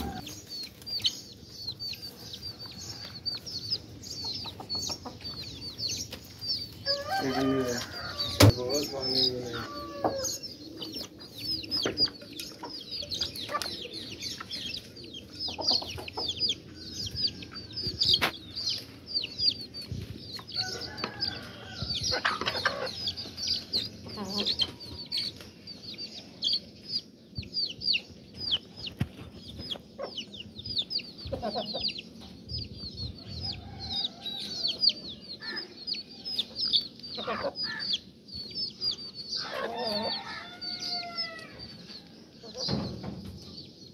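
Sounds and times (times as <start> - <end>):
hens clucking: 0.0 - 0.9, 2.0 - 16.8, 22.1 - 25.5, 28.6 - 32.1, 36.9 - 38.0
chicks peeping: 0.0 - 43.9.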